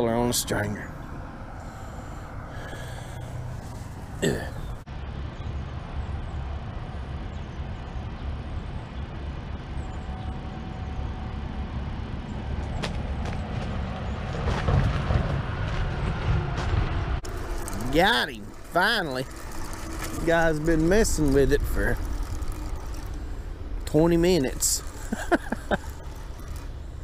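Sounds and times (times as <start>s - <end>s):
road traffic rumble: 0.0s - 27.0s
sharp clicks: 17.2s - 27.0s.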